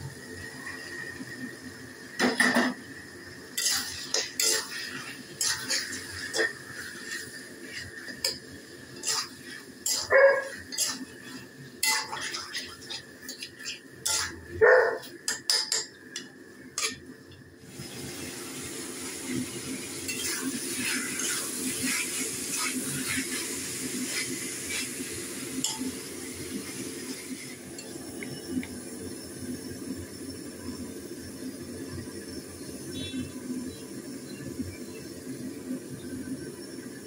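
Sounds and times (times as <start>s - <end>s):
frying hiss: 0.0s - 37.0s
metal spatula scraping a pan: 3.5s - 14.6s, 20.1s - 25.0s.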